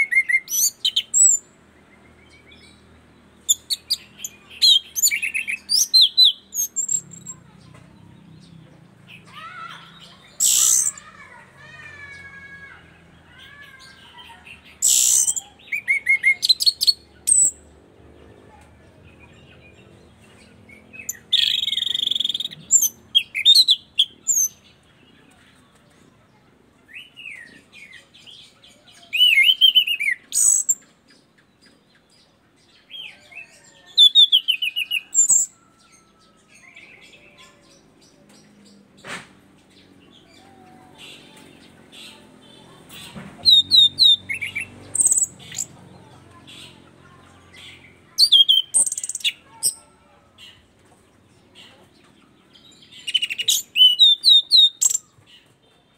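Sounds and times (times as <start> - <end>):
thrush singing trills: 0.0 - 17.7, 39.7 - 46.9.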